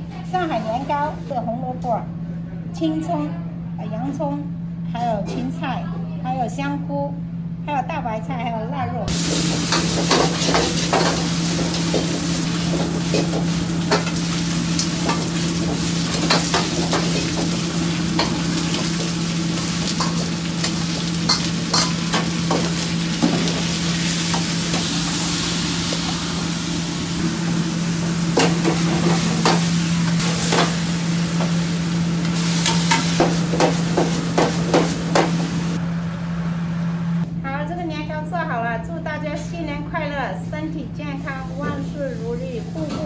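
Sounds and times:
steady low hum: 0:00.0 - 0:43.0
ladle scraping and clanking wok: 0:09.1 - 0:26.6, 0:32.3 - 0:35.4
sizzling: 0:09.1 - 0:37.2.

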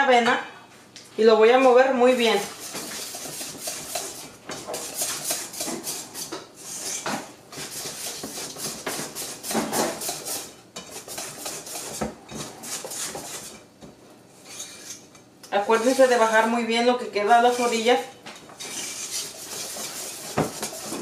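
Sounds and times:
wire whisk beating in metal bowl: 0:02.3 - 0:06.3, 0:07.6 - 0:13.6, 0:18.6 - 0:21.0.

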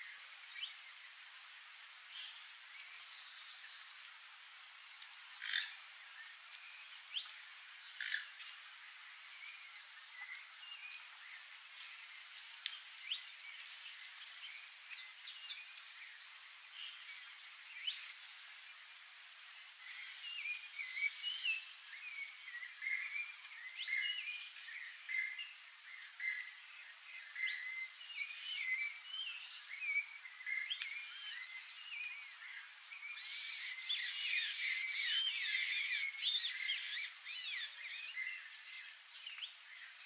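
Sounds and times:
songbirds chirping and whistling: 0:19.5 - 0:39.9.

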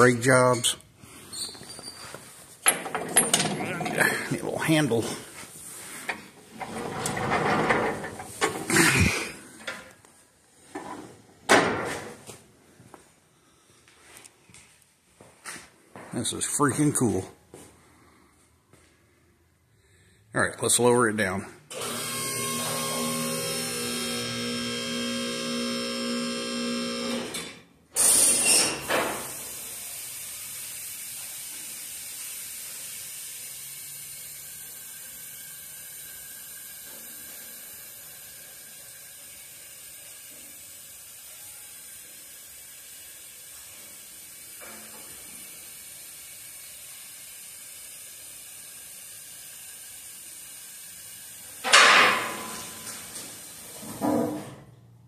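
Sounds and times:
car lift clunk: 0:51.6 - 0:53.1.

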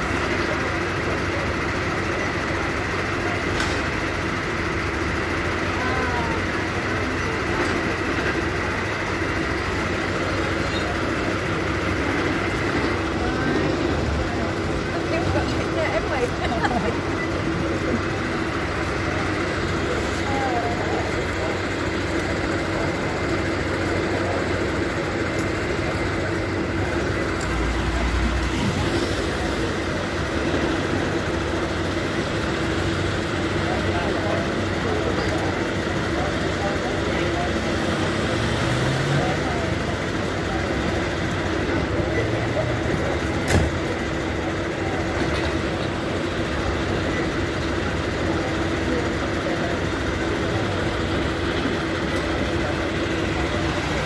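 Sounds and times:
fire engines idling: 0:00.0 - 0:54.0.

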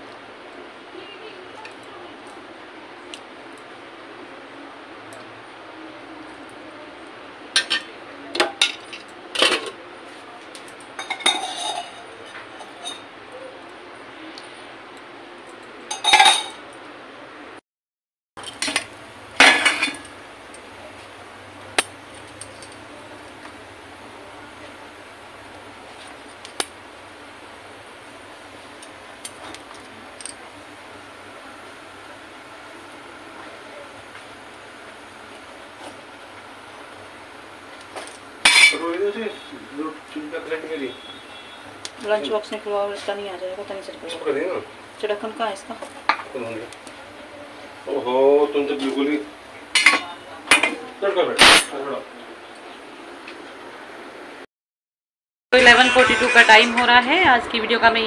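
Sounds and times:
gas burner hissing: 0:00.0 - 0:16.5, 0:18.4 - 0:53.4
ladle clinking against steel bowl: 0:11.0 - 0:13.0.

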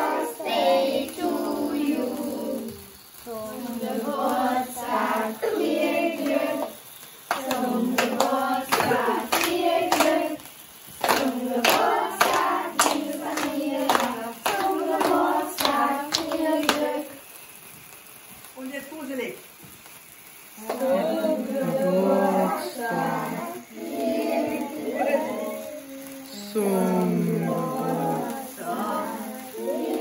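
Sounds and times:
group singing: 0:00.0 - 0:17.3, 0:20.6 - 0:30.0
people clapping in time: 0:06.2 - 0:17.0.

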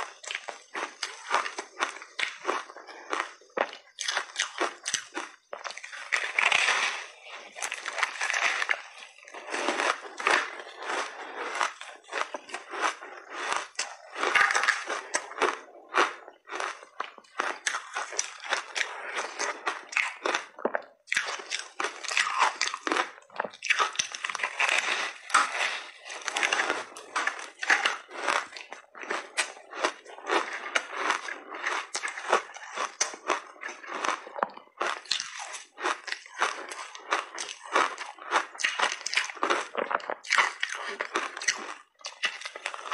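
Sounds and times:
crunching ice while chewing: 0:00.0 - 0:42.9.

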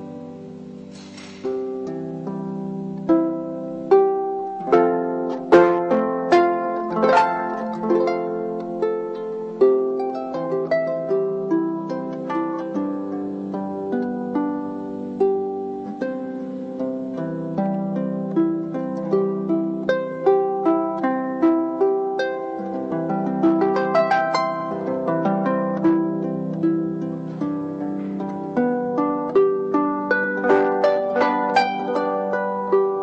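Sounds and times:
harp playing slow melody: 0:00.0 - 0:33.0.

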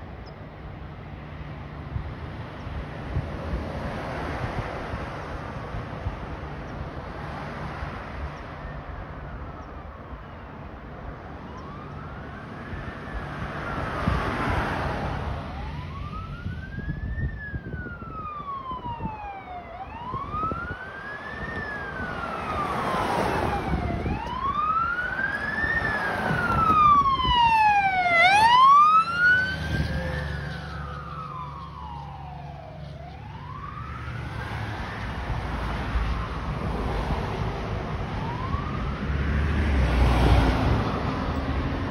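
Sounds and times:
passing traffic rumble: 0:00.0 - 0:41.9
fire engine siren wailing: 0:08.6 - 0:41.9.

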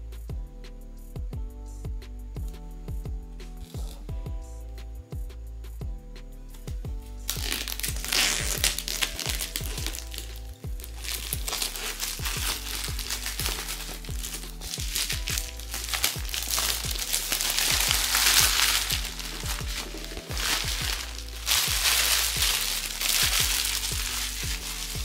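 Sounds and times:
background music: 0:00.0 - 0:25.0
plastic packaging crinkling: 0:07.3 - 0:25.0.

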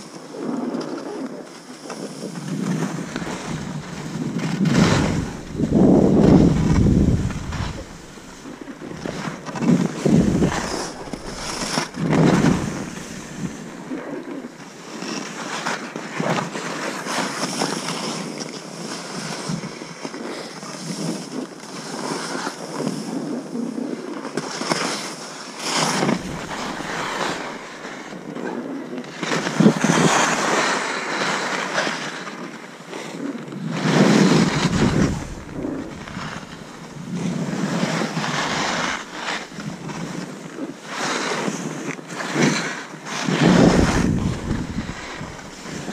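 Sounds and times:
skis hissing through snow: 0:02.2 - 0:14.4, 0:25.6 - 0:28.1, 0:33.8 - 0:40.2, 0:42.1 - 0:45.9
wind buffeting microphone: 0:02.2 - 0:14.7, 0:25.9 - 0:28.4, 0:33.8 - 0:40.2, 0:43.2 - 0:45.9.

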